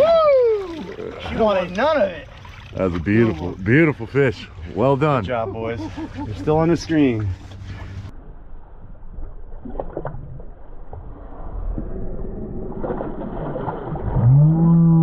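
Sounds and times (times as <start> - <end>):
loud pitched hum sweeping: 4.0 - 9.1.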